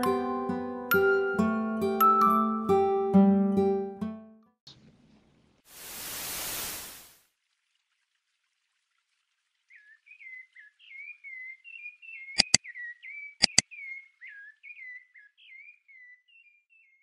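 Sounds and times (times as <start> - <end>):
mouse double-clicks: 12.4 - 12.6, 13.4 - 13.6.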